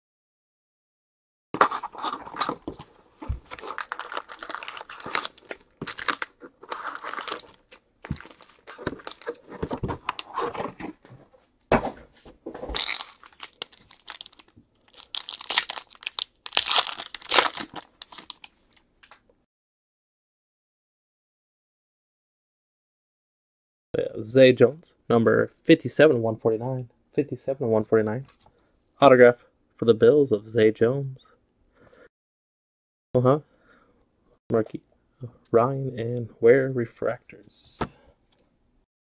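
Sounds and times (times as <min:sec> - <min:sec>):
foil wrapper crinkling and tearing: 0:03.3 - 0:09.4, 0:12.7 - 0:18.8.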